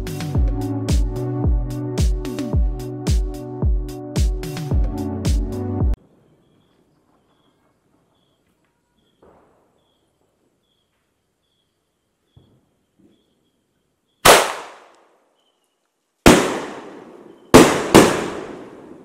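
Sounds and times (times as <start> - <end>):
firework shells bursting: 16.3 - 19.0.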